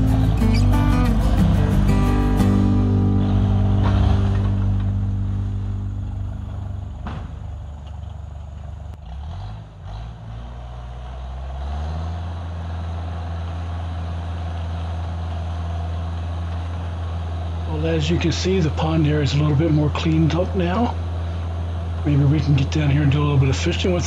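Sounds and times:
loader engine running: 0:00.0 - 0:24.0.

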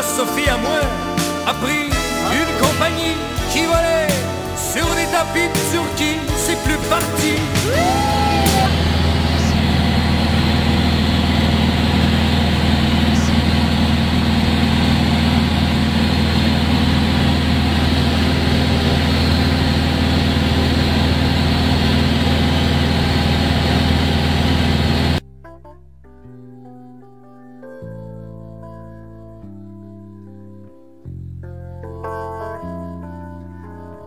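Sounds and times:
propeller engine droning: 0:02.0 - 0:25.2
air noise over airframe: 0:07.4 - 0:25.2.

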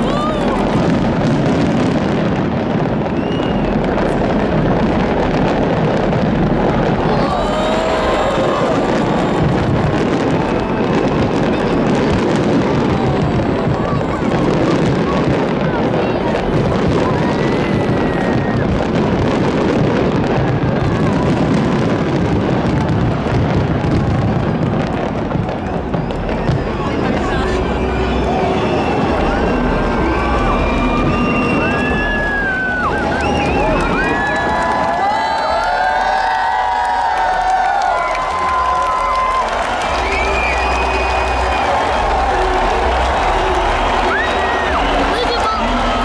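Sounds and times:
fireworks crackles and bangs: 0:00.0 - 0:46.0
faint firework whistle: 0:01.4 - 0:04.3, 0:24.0 - 0:34.7, 0:38.6 - 0:46.0.

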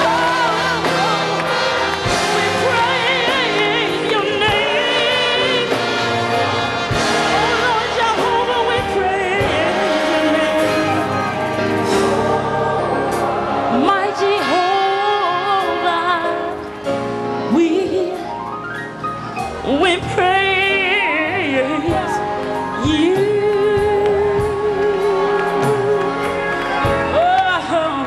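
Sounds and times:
gospel choir singing: 0:00.0 - 0:16.4.

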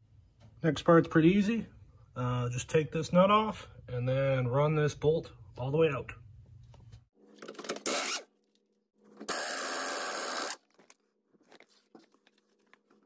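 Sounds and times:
impact wrench: 0:07.8 - 0:08.3, 0:09.2 - 0:10.6.

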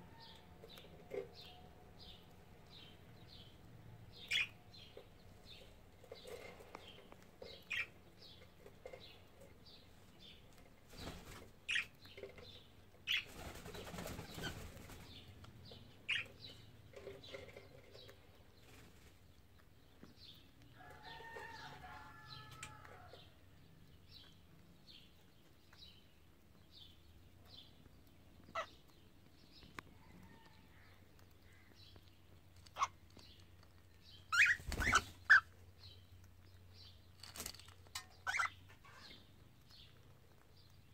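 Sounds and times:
birds pecking grains: 0:00.0 - 0:40.9.

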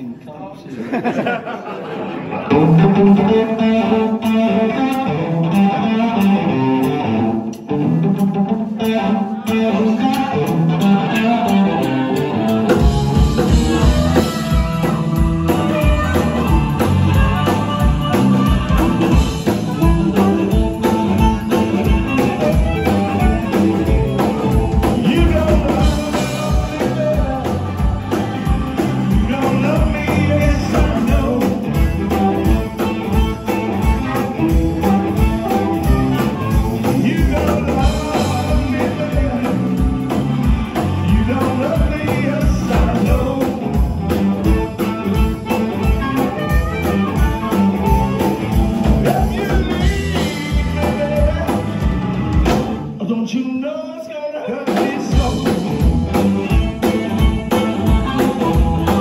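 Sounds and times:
drums: 0:00.9 - 0:59.0
bass guitar: 0:02.2 - 0:53.1, 0:54.7 - 0:59.0
electric guitar: 0:02.2 - 0:53.1, 0:54.4 - 0:59.0
harmonica: 0:10.8 - 0:42.4, 0:43.0 - 0:52.6, 0:55.3 - 0:59.0.

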